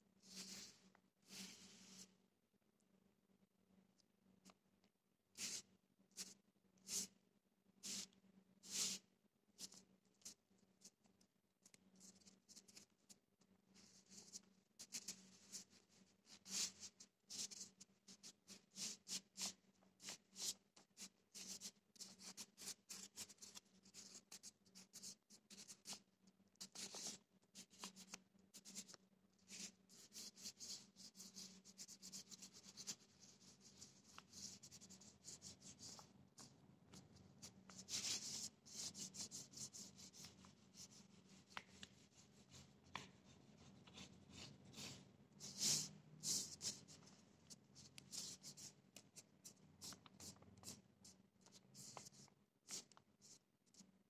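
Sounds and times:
hands rubbing paper: 0.2 - 2.1, 13.7 - 26.0, 26.6 - 53.9.

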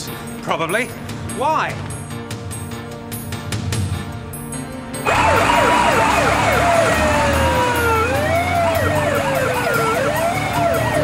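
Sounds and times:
fire engine sirens wailing: 5.0 - 11.0.

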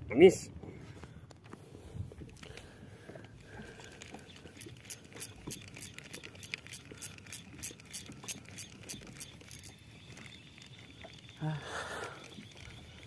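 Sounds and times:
low rumble of wind and water: 0.0 - 13.0
spinning reel ticking: 4.3 - 13.0.

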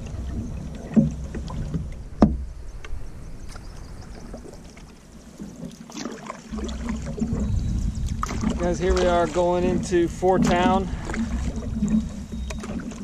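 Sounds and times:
wind rumble on microphone: 0.0 - 5.7, 6.5 - 13.0
paddle splashing water: 0.0 - 13.0
sharp knock on canoe: 2.2 - 2.4.

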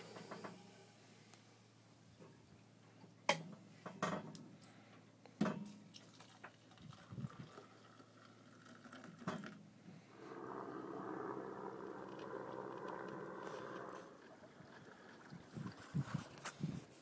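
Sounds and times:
hot water pouring into mug: 6.0 - 9.6, 12.9 - 16.4.

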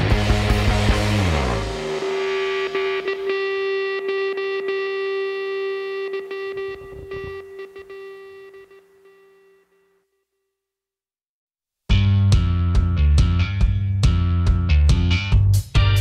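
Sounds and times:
distorted electric guitar note: 0.0 - 9.9.

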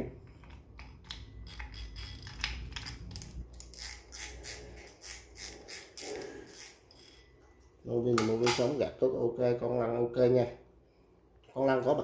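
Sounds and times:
fishing reel clicking and rattling: 1.4 - 7.2.

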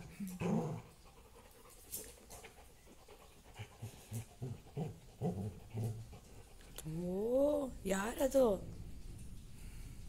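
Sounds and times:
dog play growls: 0.0 - 1.2, 3.5 - 6.5.

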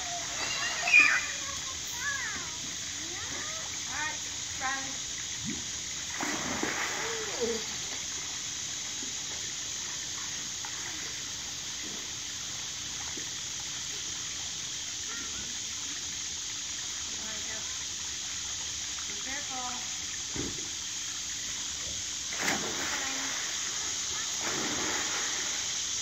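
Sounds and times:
water rushing into pool: 0.0 - 26.0
water splash: 5.4 - 8.0, 22.3 - 25.8.

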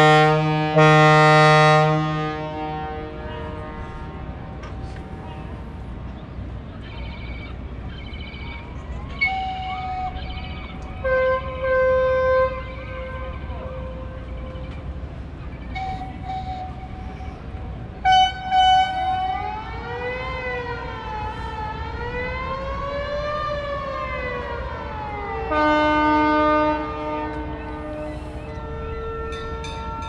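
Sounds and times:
boat horn blasts: 0.0 - 5.8, 11.0 - 14.6, 15.7 - 17.2, 18.0 - 19.4, 25.4 - 30.0
long steady horn blast: 0.0 - 6.0, 11.0 - 14.6, 15.8 - 30.0
wailing siren-like tone: 6.8 - 17.2, 18.3 - 30.0.

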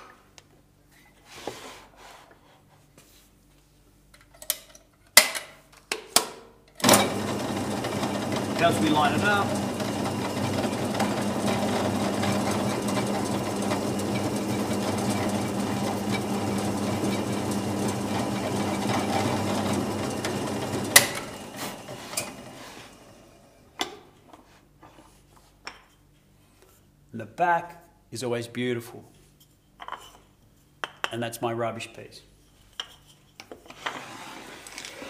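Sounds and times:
motor running down: 6.8 - 22.7
drill press drilling wood: 6.8 - 23.2.

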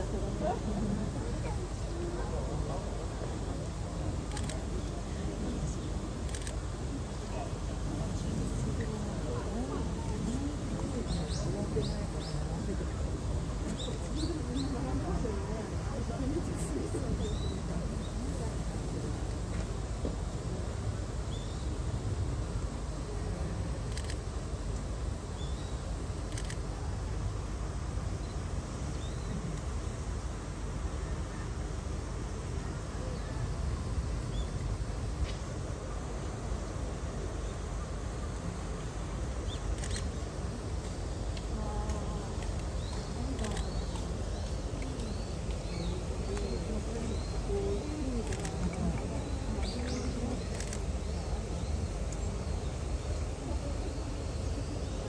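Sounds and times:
faint background voices: 0.0 - 55.0
low crowd rumble: 0.0 - 55.0
birds chirping: 41.2 - 55.0.

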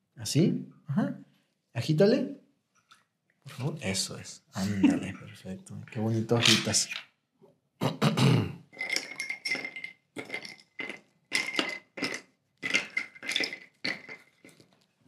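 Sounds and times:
ice rattling in cocktail shaker: 8.7 - 14.8.

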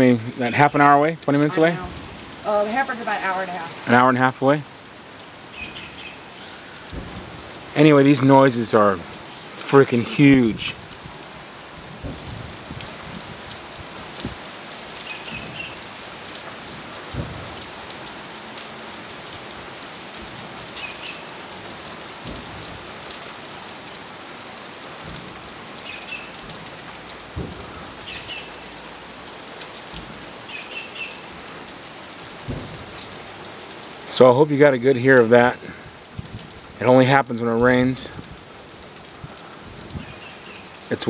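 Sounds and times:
rain pattering: 0.0 - 41.0
dull low booms: 6.6 - 14.5, 16.7 - 17.6, 26.4 - 28.1.

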